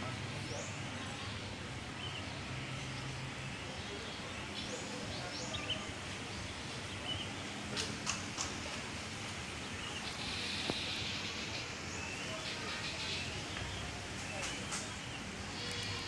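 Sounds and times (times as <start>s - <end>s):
outdoor background noise: 0.0s - 16.0s
sharp clicks: 7.8s - 8.6s.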